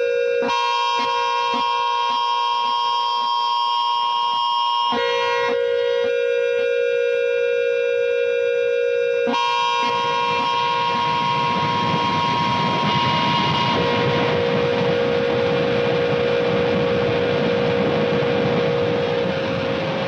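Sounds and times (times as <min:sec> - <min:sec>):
high held tone: 0:00.0 - 0:20.0
harsh electronic noise: 0:09.3 - 0:20.0
low drone: 0:10.0 - 0:20.0.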